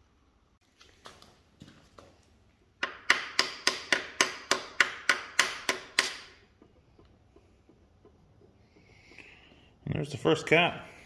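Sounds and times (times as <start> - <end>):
hammer striking metal pliers: 2.8 - 6.7.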